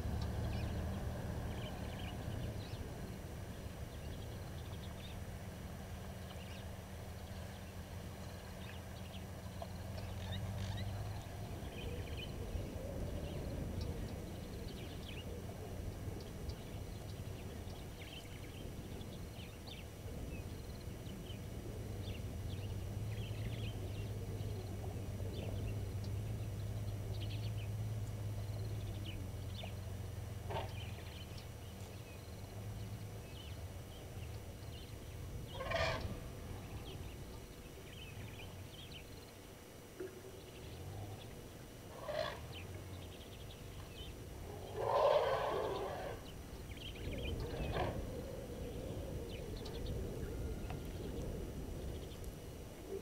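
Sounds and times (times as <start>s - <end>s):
vehicle engine humming: 0.0s - 17.6s, 21.7s - 37.5s
birds chirping: 0.0s - 53.0s
loud bird call: 35.5s - 36.2s, 44.6s - 46.4s.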